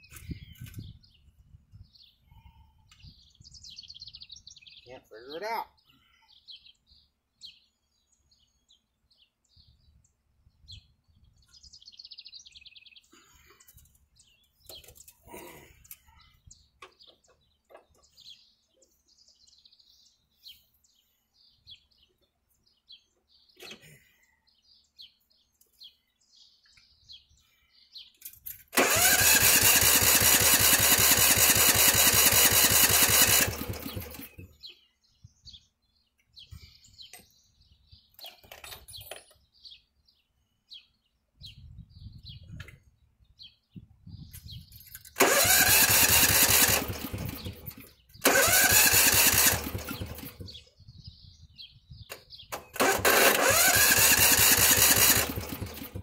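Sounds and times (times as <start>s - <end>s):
engine cranking by electric starter: 28.7s - 34.5s, 45.1s - 50.6s, 52.5s - 56.0s.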